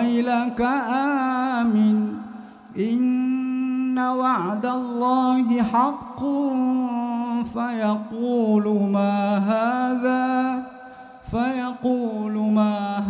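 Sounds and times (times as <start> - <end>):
man chanting melodically: 0.0 - 13.0
man breathing: 2.3 - 2.8, 10.7 - 11.2.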